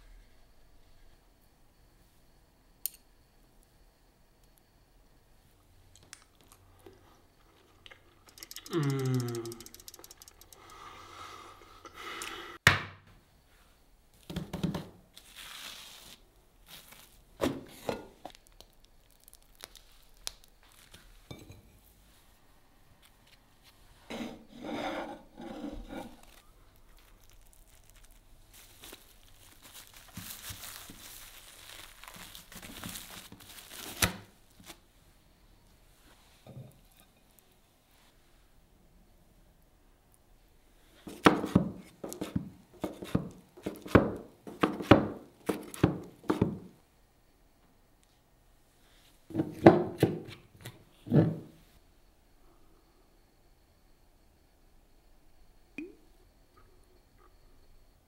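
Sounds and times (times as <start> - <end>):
plastic-wrapped mat crinkling: 26.2 - 34.8.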